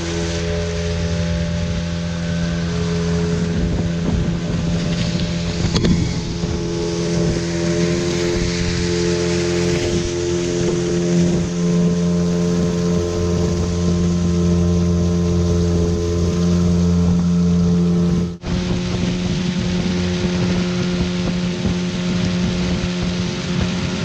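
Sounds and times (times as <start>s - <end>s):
outboard motor humming: 0.0s - 24.0s
water spray rushing along hull: 0.0s - 24.0s.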